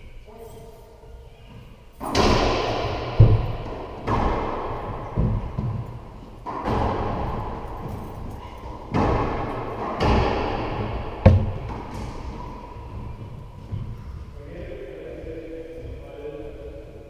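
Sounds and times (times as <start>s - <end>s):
racquetball smacking court walls: 2.0s - 13.1s.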